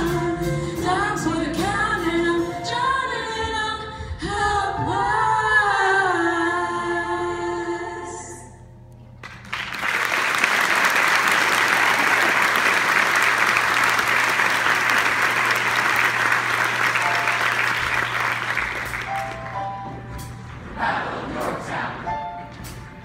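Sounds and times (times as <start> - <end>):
audience applauding: 9.2 - 19.9
choir singing: 20.6 - 22.5.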